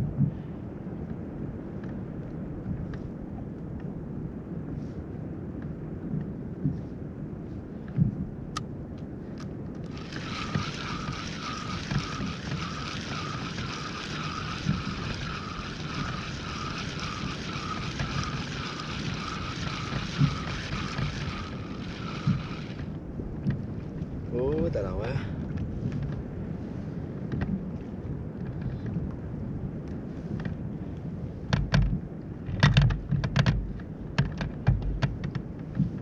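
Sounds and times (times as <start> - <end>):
low wind and water rumble: 0.0 - 36.0
sharp clicks: 9.4 - 23.6
fishing reel whirring: 9.8 - 23.1.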